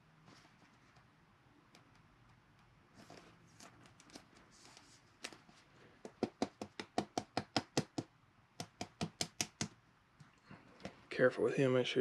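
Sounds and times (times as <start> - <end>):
rapid tapping on plastic: 6.0 - 9.8.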